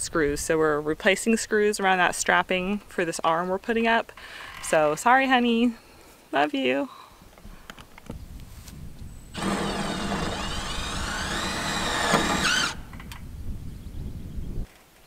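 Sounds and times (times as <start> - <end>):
power drill motor whine: 9.3 - 12.9.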